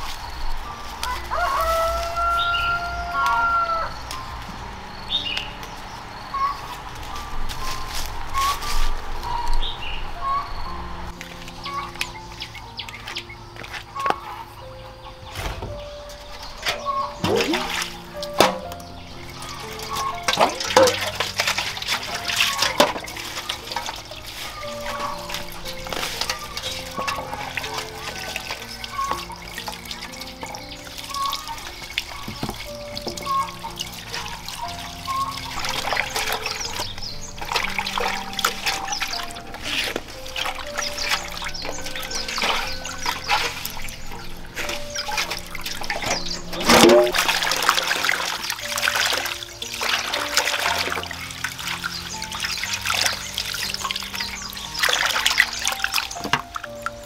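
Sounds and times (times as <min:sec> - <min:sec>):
soft background music: 0:00.0 - 0:57.0
water splashing in basin: 0:15.3 - 0:57.0.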